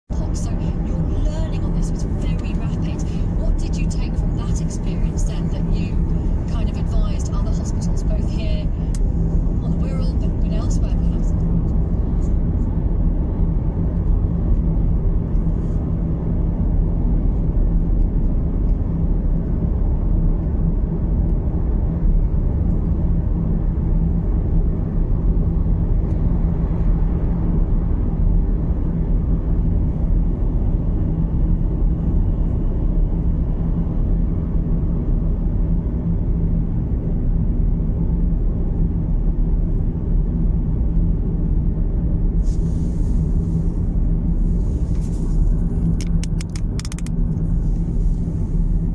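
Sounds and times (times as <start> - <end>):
road and engine noise in car: 0.1 - 48.9
brief hiss: 42.4 - 43.9.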